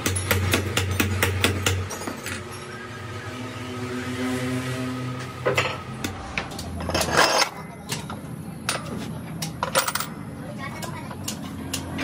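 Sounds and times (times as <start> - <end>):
metal parts clinking: 6.5 - 7.6, 9.4 - 10.2.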